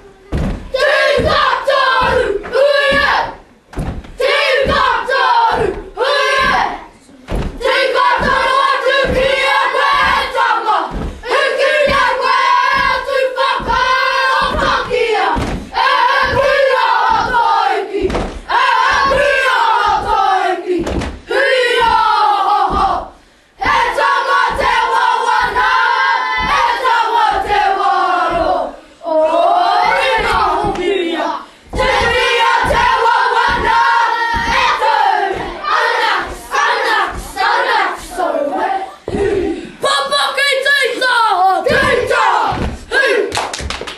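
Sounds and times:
stamping and slapping thumps: 0.3s - 20.2s, 20.8s - 21.2s, 22.7s - 25.8s, 26.4s - 28.6s, 29.8s - 31.0s, 31.7s - 37.7s, 41.7s - 42.9s
children chanting in unison: 0.6s - 3.5s, 4.2s - 43.4s
stamps and slaps: 14.4s - 17.4s, 18.0s - 19.3s.

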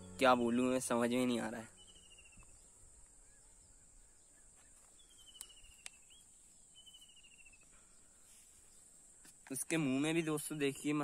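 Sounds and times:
high insect drone: 0.0s - 11.0s
faint clicks: 5.3s - 6.0s.

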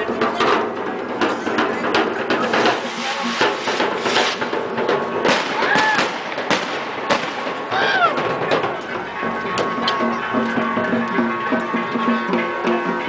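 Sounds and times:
crowd noise: 0.0s - 13.0s
sharp cracks and beats: 2.4s - 8.8s.

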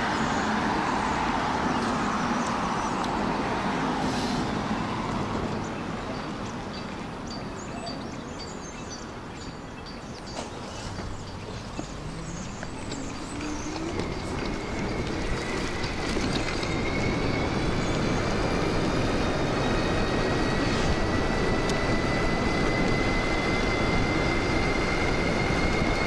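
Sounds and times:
rushing wind: 0.0s - 7.6s, 8.2s - 26.0s
road noise: 0.0s - 26.0s
electric motor whining: 10.9s - 26.0s.

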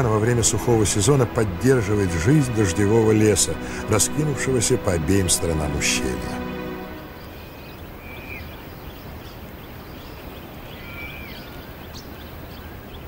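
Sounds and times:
waterfall rushing: 0.0s - 8.0s.

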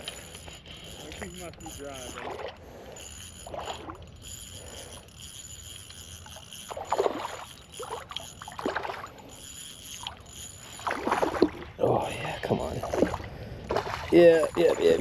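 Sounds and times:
water splashing: 6.7s - 9.3s, 10.0s - 15.0s.

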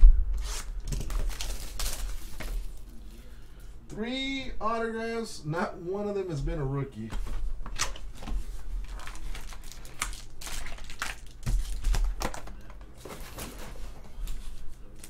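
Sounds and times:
foil packs crinkling: 0.4s - 3.0s, 8.8s - 15.0s.

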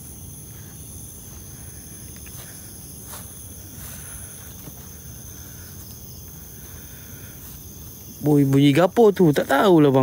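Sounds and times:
crickets chirring: 0.0s - 10.0s.

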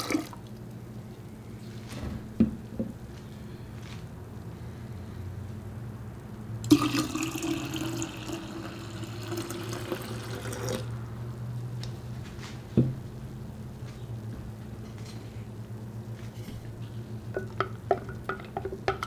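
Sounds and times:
water pouring into a pitcher: 0.0s - 0.5s, 6.6s - 10.9s.

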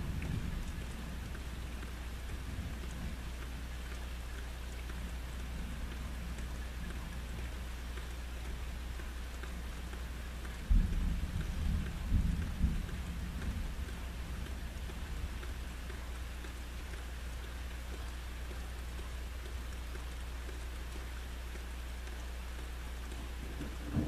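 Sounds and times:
steady rain: 0.0s - 24.0s
thunder rumbling: 23.4s - 24.0s.

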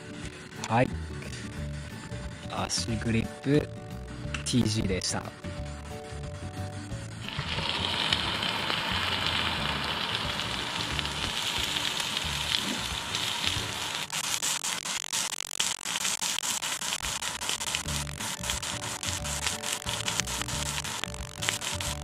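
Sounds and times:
faint background music: 0.0s - 14.1s
camp stove burner hissing: 7.1s - 14.4s, 17.5s - 22.0s
food sizzling and crackling: 7.1s - 22.0s.

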